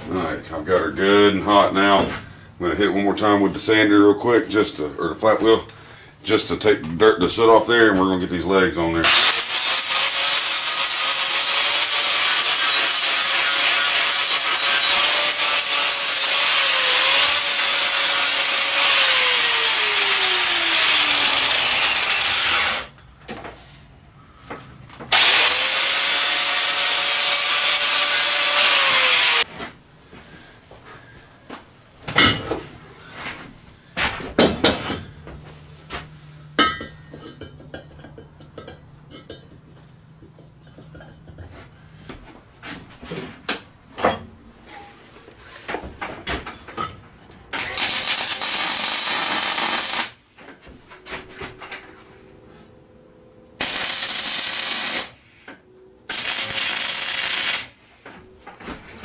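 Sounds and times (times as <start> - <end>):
angle grinder grinding steel: 9.0 - 23.0, 25.1 - 29.5, 47.5 - 50.1, 53.6 - 55.1, 56.1 - 57.7
arc welding bursts: 9.1 - 22.9, 25.1 - 29.4, 47.6 - 50.2, 53.6 - 55.2, 56.1 - 57.8
steel tubing clanking on plate: 36.6 - 39.6.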